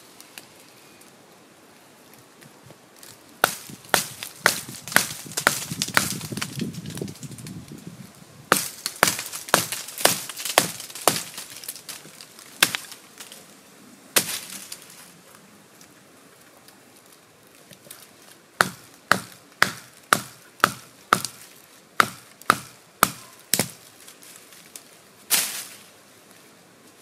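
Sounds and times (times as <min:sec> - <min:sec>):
knife chopping into wood: 0:03.4 - 0:06.4, 0:08.5 - 0:11.4, 0:18.6 - 0:21.4, 0:22.0 - 0:23.8.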